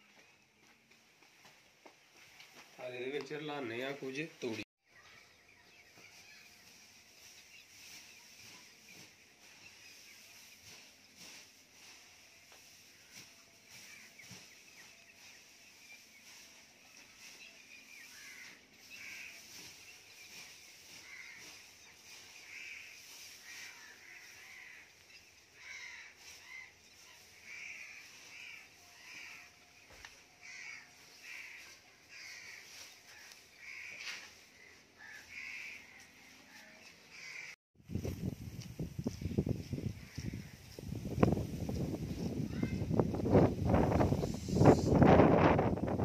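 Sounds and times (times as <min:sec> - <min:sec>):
straw rustling: 0:05.0 - 0:44.2
bird calling: 0:17.0 - 0:37.6.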